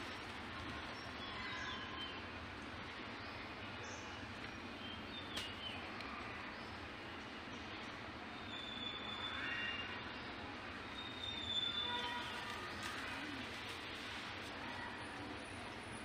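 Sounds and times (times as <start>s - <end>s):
outdoor background noise: 0.0s - 16.0s
faint bird chirps: 10.9s - 13.2s.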